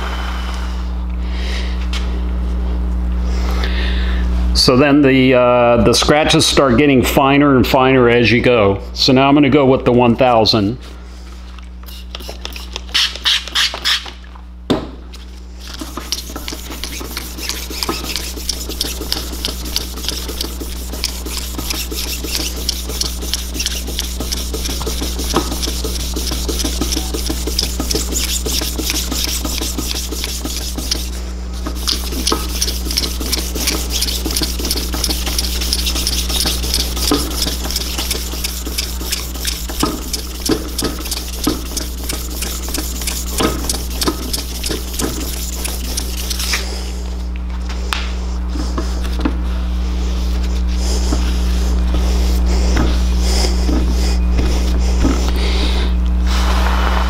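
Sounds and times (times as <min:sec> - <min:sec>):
sandpaper rasping on metal: 0:11.9 - 0:14.0, 0:15.6 - 0:46.6.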